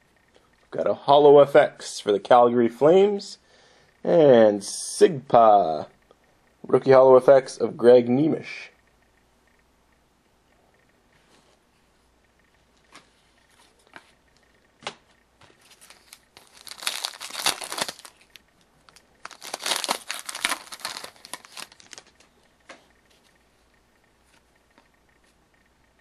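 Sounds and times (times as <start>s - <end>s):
card pack wrapper tearing: 15.6s - 22.2s.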